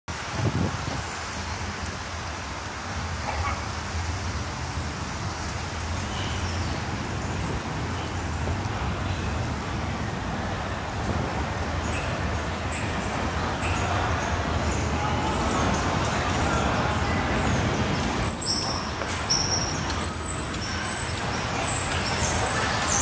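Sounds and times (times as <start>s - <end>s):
city street traffic rumble: 0.1s - 23.0s.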